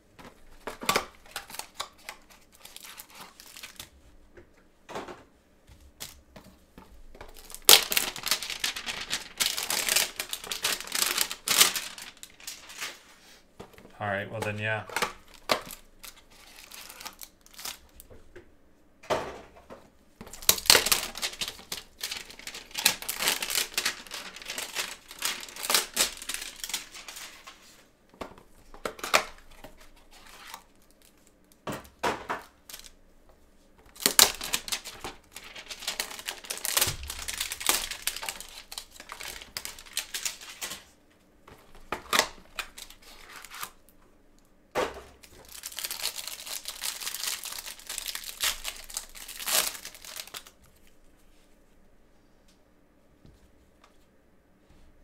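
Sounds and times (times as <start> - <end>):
cellophane crinkling: 0.3 - 4.0, 7.0 - 18.0, 20.2 - 27.8, 28.8 - 31.6, 32.4 - 33.0, 33.8 - 43.8, 45.2 - 51.0.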